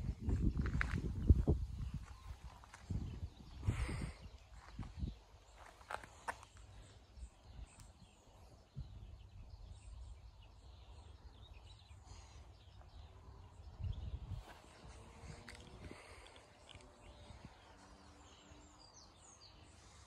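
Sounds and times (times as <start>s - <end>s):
low microphone rumble: 0.0s - 5.2s.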